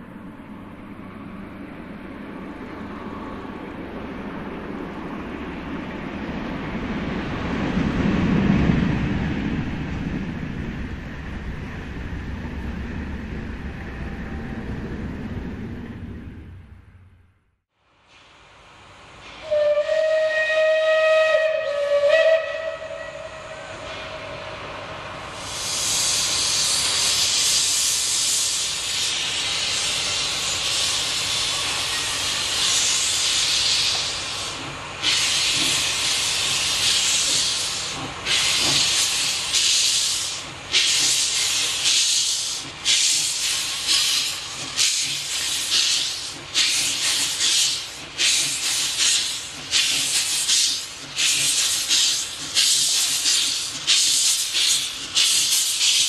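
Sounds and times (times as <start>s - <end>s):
steam locomotive exhaust beats: 18.2s - 56.0s
steam hissing: 22.9s - 56.0s.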